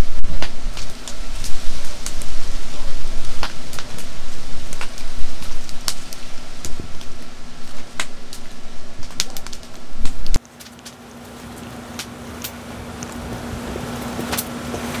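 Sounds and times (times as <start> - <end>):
heavy low rumble: 0.0 - 10.4.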